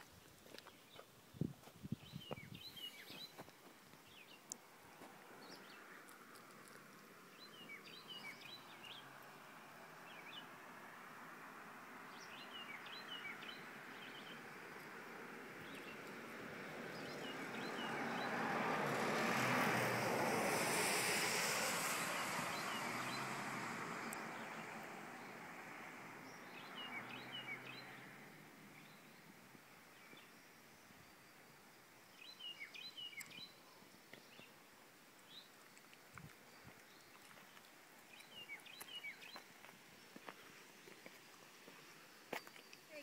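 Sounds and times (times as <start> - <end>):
small birds chirping: 0.0 - 10.7, 12.0 - 18.5, 21.3 - 43.0
broad rushing noise: 17.3 - 26.0.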